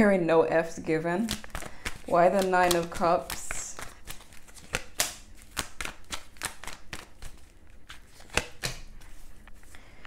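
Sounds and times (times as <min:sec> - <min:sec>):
cards being shuffled: 0:01.2 - 0:09.8.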